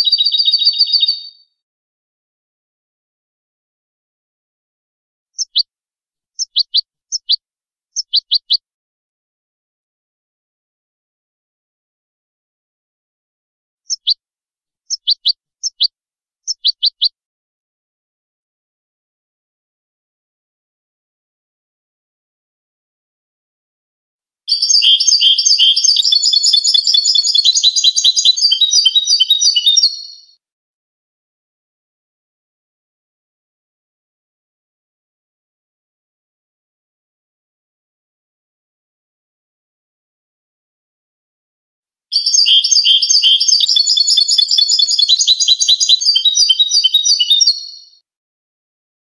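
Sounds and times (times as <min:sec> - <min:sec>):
goldfinch twittering song: 0:00.0 - 0:01.5, 0:05.4 - 0:05.7, 0:06.4 - 0:07.4, 0:08.0 - 0:08.6, 0:13.9 - 0:14.2, 0:14.9 - 0:17.1, 0:24.5 - 0:30.4, 0:42.1 - 0:48.0.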